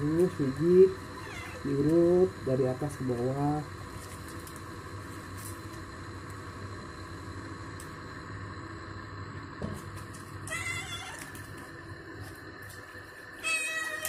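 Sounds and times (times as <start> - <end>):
cat meowing: 1.2 - 1.7, 10.5 - 11.4, 13.4 - 14.0.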